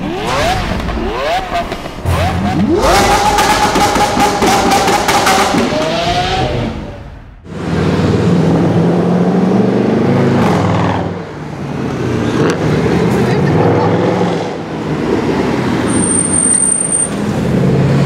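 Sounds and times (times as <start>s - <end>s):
car engine starting and driving: 0.0s - 18.0s.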